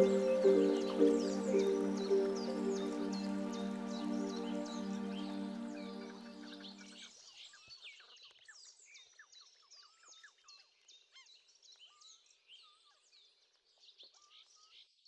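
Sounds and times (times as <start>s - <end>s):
faint birdsong: 0.0s - 6.9s.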